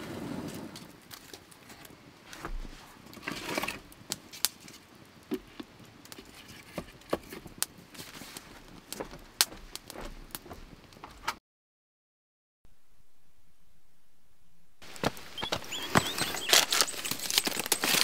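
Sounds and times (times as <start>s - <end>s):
rustling: 0.0s - 5.6s, 14.8s - 18.0s.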